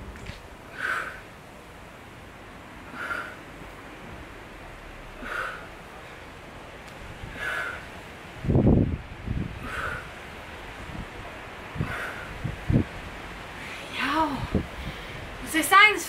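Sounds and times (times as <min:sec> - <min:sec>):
person breathing out hard: 0:00.7 - 0:01.3, 0:02.9 - 0:03.5, 0:05.1 - 0:06.3, 0:07.2 - 0:08.1, 0:09.5 - 0:10.3, 0:11.8 - 0:12.8.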